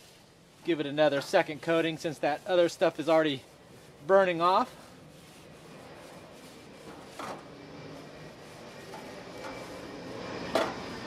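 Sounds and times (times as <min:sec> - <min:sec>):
steady hiss: 0:00.0 - 0:07.2
rag scraping grill grates: 0:00.7 - 0:07.5.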